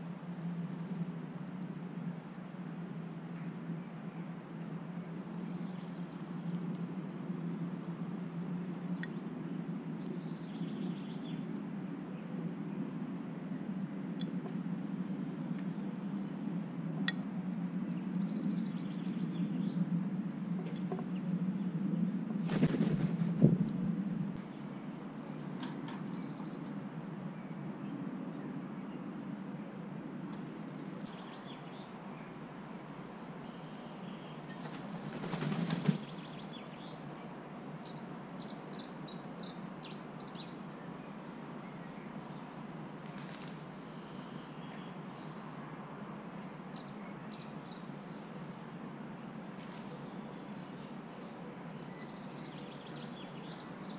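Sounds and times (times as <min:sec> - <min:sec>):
low background rumble: 0:00.0 - 0:45.4
faint low outdoor hum: 0:00.0 - 0:53.9
songbird chirping: 0:08.9 - 0:12.8, 0:13.5 - 0:29.4, 0:30.3 - 0:48.5, 0:49.6 - 0:53.9
faint bird chirps: 0:33.4 - 0:42.6, 0:43.2 - 0:45.5, 0:49.7 - 0:53.9.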